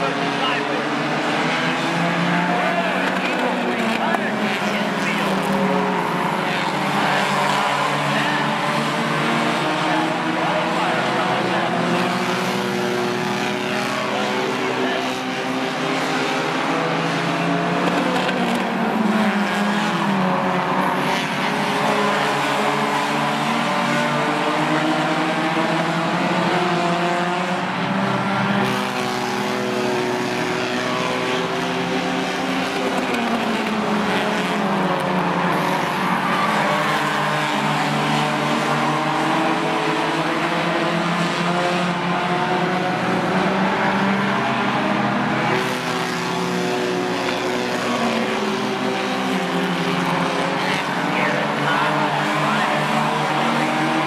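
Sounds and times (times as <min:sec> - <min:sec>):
racing car engines: 0:00.0 - 0:54.0.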